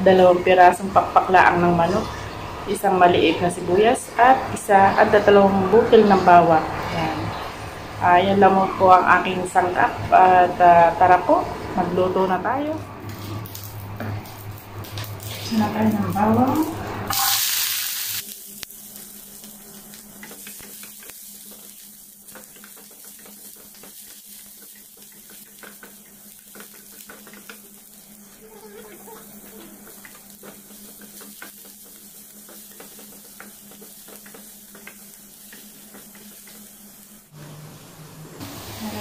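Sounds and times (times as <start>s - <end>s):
onion sizzling in hot oil: 13.1s - 37.4s, 38.4s - 39.0s.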